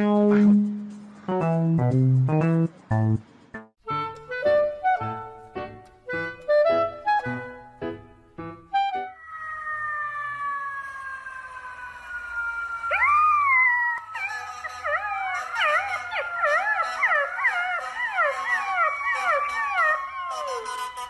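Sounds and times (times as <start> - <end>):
puppy howling: 9.1 - 21.0.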